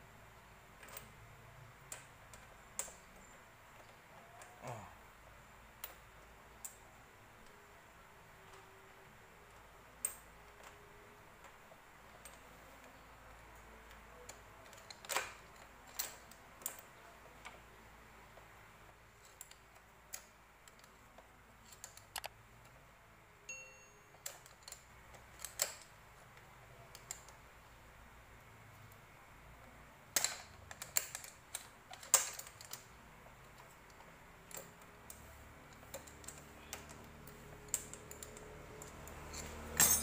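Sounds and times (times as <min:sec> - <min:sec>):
high ding: 0:23.5 - 0:24.2
metallic clinks of hand tools: 0:39.2 - 0:40.0.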